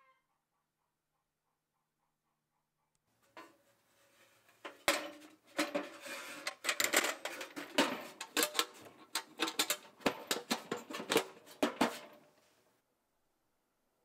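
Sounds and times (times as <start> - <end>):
metal tool box clanking: 4.6 - 12.3.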